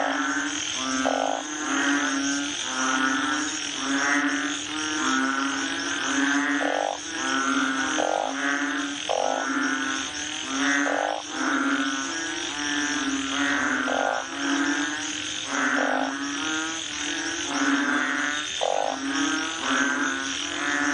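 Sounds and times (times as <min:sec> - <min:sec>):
frogs low steady calls: 0:00.0 - 0:20.9
frogs rasping calls: 0:00.0 - 0:20.9.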